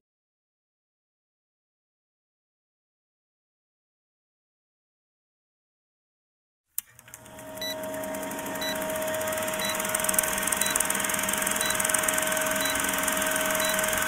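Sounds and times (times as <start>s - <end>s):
film projector whirring rattle: 6.8s - 14.0s
short high beeps: 11.6s - 14.0s.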